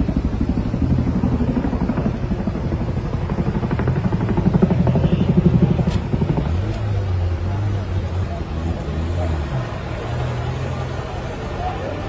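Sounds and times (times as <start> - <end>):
helicopter rotor blades beating: 0.0 - 12.0.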